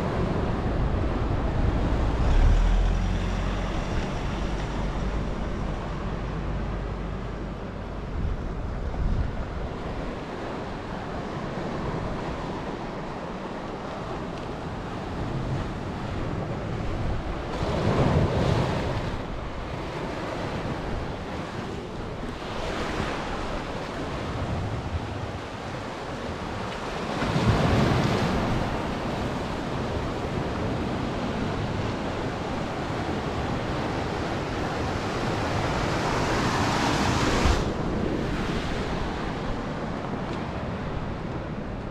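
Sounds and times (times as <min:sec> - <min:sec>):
wind buffeting microphone: 0:00.0 - 0:26.0
surf on rocky shore: 0:00.0 - 0:41.9.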